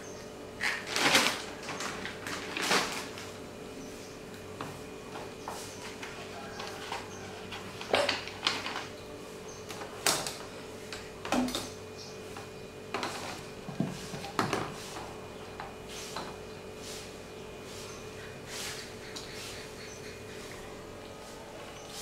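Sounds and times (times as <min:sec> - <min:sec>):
plastic bottle crackling: 0:00.6 - 0:03.2.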